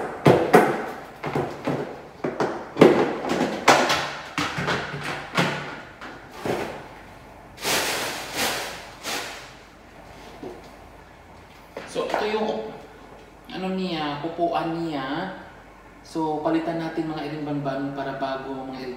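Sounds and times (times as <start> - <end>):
plastic bag rustling: 7.6 - 9.6.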